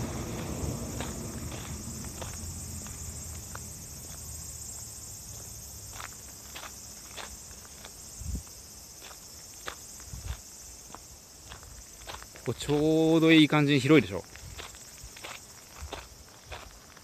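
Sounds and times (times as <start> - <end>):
passing vehicle rumble: 0.0 - 5.9
footsteps crunching on gravel: 0.0 - 17.0
insects chirring: 0.0 - 17.0.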